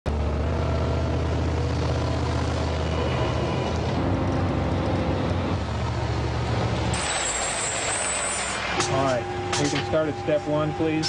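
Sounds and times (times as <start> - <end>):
truck diesel engine running: 0.1 - 11.0.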